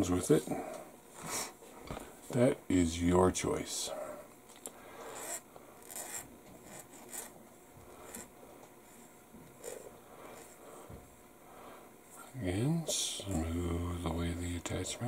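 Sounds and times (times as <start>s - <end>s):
file scratching metal part: 5.1s - 7.4s.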